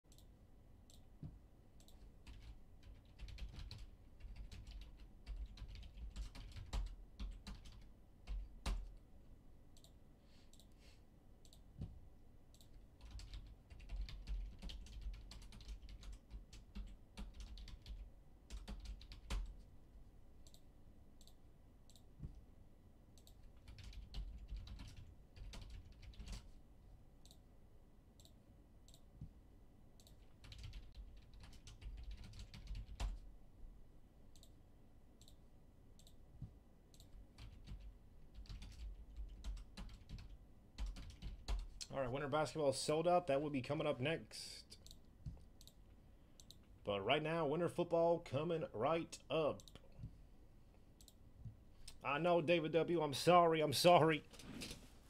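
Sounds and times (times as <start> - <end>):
typing on computer keyboard: 1.8 - 9.0, 12.6 - 19.6, 23.2 - 26.5, 30.0 - 33.2, 36.9 - 41.8.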